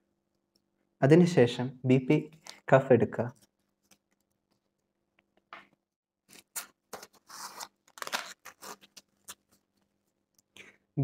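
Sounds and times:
velcro fastening rasping: 0:06.3 - 0:09.6.

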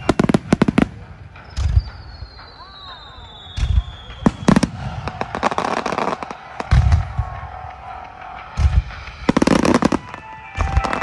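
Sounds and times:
deep fireworks booms: 0:00.0 - 0:07.6
fireworks bangs and crackles: 0:00.0 - 0:11.0.

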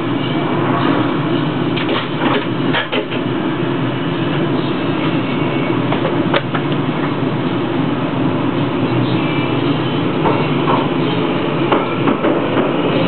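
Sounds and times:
train motor and wheels on rail: 0:00.0 - 0:13.0.

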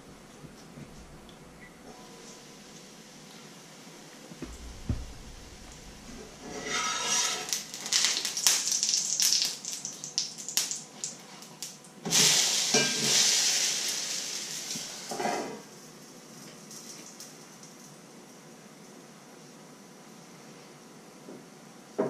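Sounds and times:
pancake sizzling in pan: 0:04.5 - 0:15.6
metal utensil scraping pan: 0:06.2 - 0:07.6.

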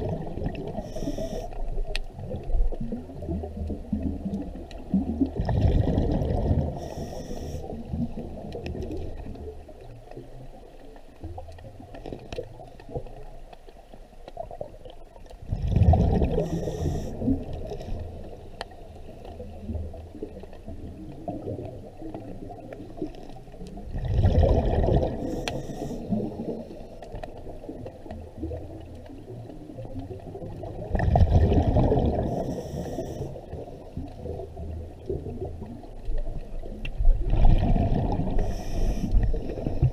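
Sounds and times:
regulator bubbles bursting: 0:02.2 - 0:06.8, 0:15.4 - 0:17.8, 0:23.8 - 0:25.3, 0:27.8 - 0:32.6, 0:37.0 - 0:38.4.

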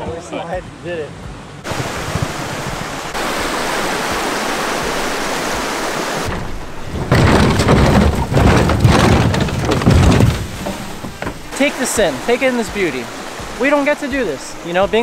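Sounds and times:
boat splashing into water: 0:01.6 - 0:15.0
boat hull scraping on wooden rails: 0:04.8 - 0:12.4.

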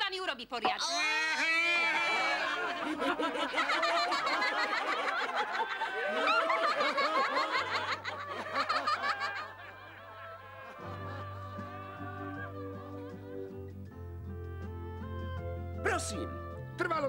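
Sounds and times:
cartoon voices laughing: 0:00.6 - 0:12.7.

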